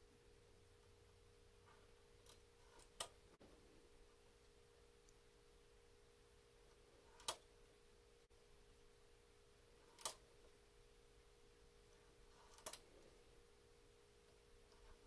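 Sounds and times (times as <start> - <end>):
faint steady hum: 0.0 - 15.0
sharp metallic clicks: 9.9 - 10.2, 12.5 - 12.9.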